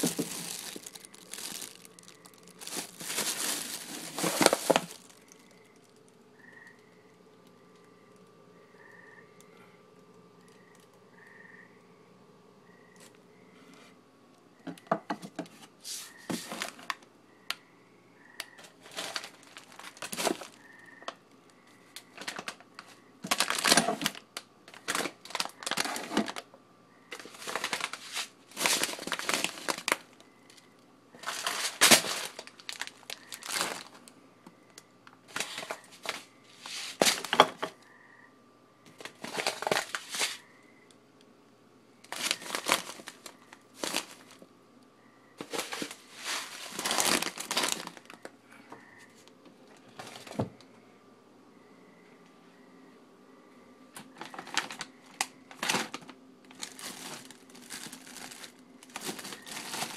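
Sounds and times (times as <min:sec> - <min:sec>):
plastic packaging crinkling: 0:00.0 - 0:08.2, 0:16.0 - 0:17.0, 0:18.7 - 0:20.6, 0:22.0 - 0:26.5, 0:27.1 - 0:30.2, 0:31.2 - 0:34.1, 0:35.3 - 0:37.8, 0:38.9 - 0:40.4, 0:42.1 - 0:44.5, 0:45.4 - 0:48.3, 0:54.0 - 0:59.9.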